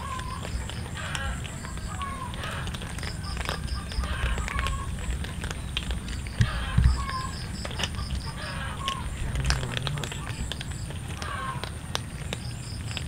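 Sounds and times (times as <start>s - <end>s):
cats crunching dry kibble: 0.0s - 13.0s.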